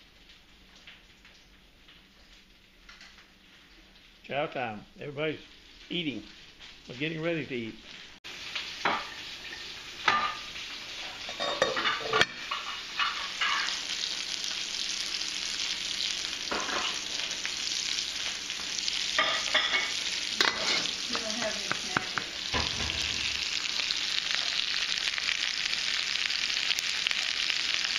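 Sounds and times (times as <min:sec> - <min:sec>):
meat sizzling in a pan: 0:05.2 - 0:27.9
pots and utensils clinking: 0:08.8 - 0:14.0, 0:16.5 - 0:17.4, 0:19.0 - 0:23.6.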